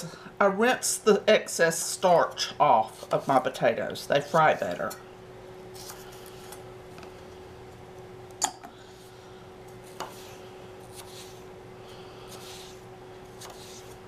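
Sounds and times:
faint steady hum: 0.0 - 14.0
knife slicing and scraping: 9.8 - 11.5, 12.2 - 14.0.

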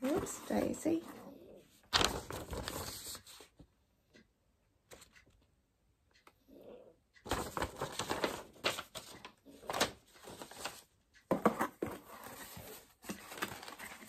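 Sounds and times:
paper and plastic rustling: 0.0 - 1.0, 1.9 - 3.6, 7.3 - 14.0.

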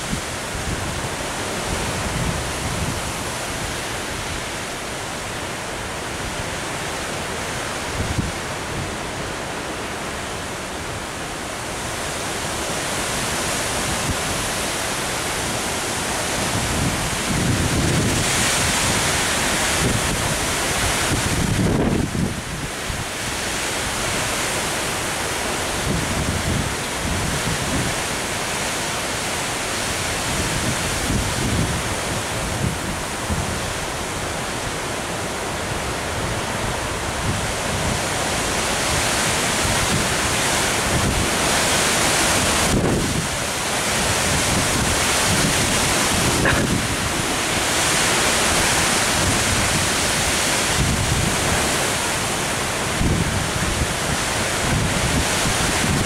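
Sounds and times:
wind gusting through trees: 0.0 - 56.0
wind buffeting microphone: 16.2 - 23.1, 29.8 - 34.6, 36.2 - 56.0.

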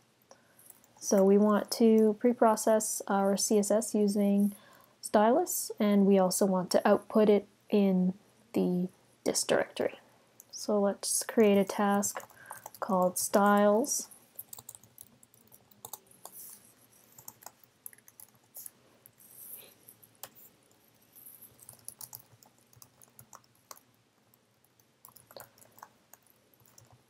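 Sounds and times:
typing on computer keyboard: 12.1 - 13.7, 14.4 - 18.7, 21.4 - 27.0.

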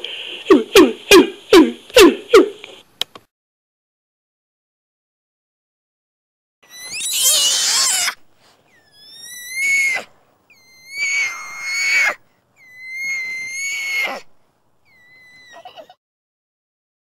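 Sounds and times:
orangutan calling: 6.7 - 16.0.

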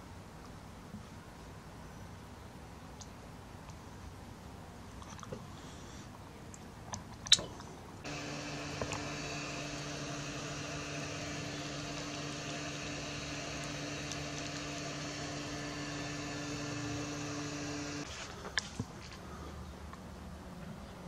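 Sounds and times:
steady low hum: 7.6 - 20.6.

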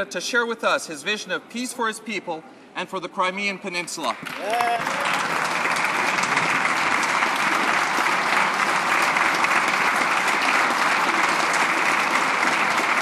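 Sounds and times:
crowd clapping: 4.1 - 13.0.

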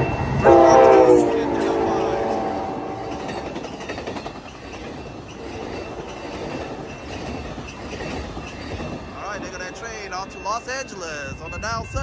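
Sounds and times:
train rumble: 0.0 - 12.0
train wheels clattering over rails: 0.0 - 12.0
train horn blast: 0.4 - 3.6.

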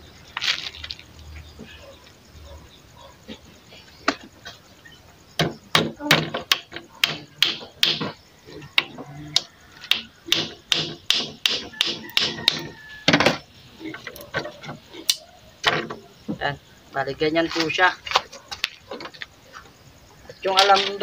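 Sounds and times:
hammer driving nail into wood: 5.8 - 8.1, 9.8 - 12.7.

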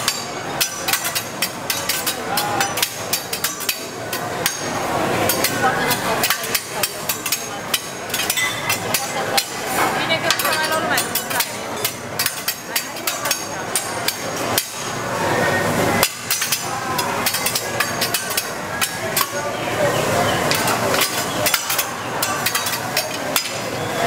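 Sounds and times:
metal spatula and knife clattering: 0.0 - 15.0, 16.0 - 19.5, 20.2 - 23.9.

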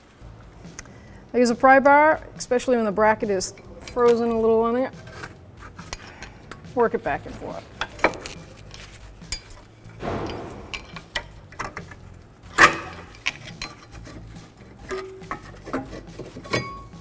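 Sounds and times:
brake parts scraping: 3.0 - 10.0, 10.9 - 17.0
metal clanks and clicks: 7.8 - 17.0.

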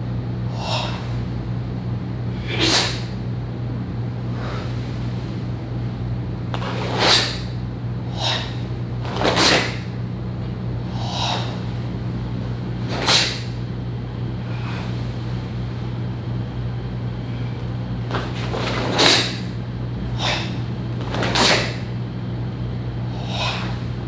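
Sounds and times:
steady low hum: 0.0 - 24.0
fabric snapping swishes: 9.0 - 9.9, 12.8 - 13.6, 21.0 - 21.9.

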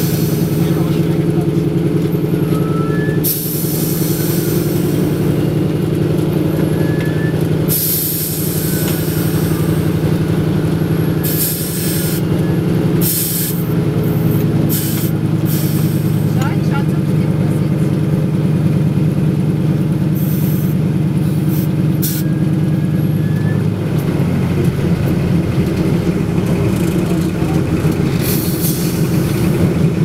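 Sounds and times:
radial engine running: 0.0 - 30.0.

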